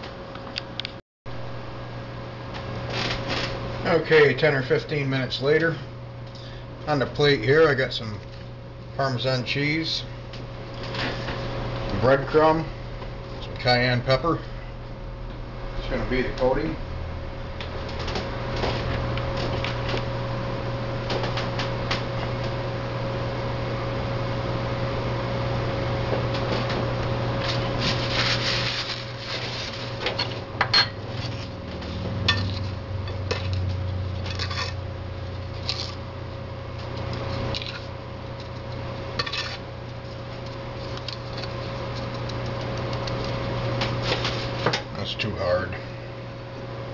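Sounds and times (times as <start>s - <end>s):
steady low hum: 0.0s - 46.9s.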